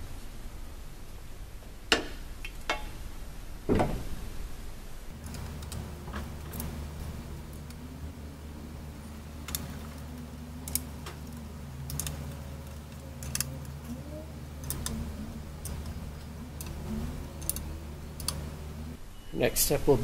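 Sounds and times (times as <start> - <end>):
steady low hum: 0.0 - 20.0
screwdriver clicking on metal: 10.6 - 13.8, 14.6 - 18.4.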